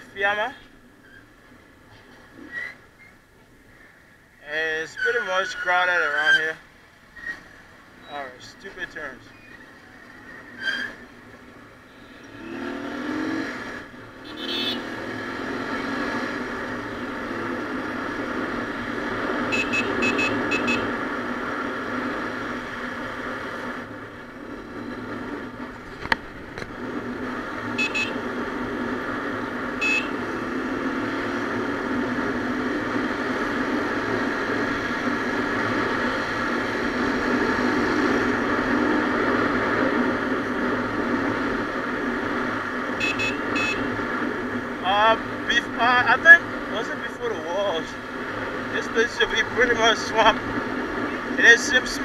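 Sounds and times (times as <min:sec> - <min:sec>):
motorcycle engine: 0:12.1 - 0:47.2
high horn beeps: 0:14.2 - 0:14.9, 0:19.5 - 0:20.9, 0:27.7 - 0:28.3, 0:29.8 - 0:30.2, 0:43.0 - 0:44.0.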